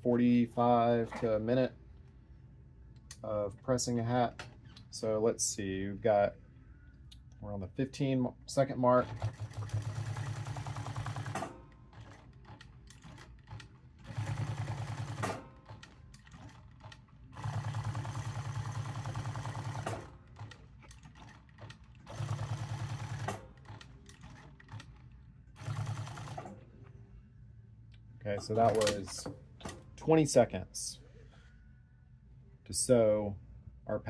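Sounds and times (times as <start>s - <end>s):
sewing machine stitching: 9.0s - 26.6s.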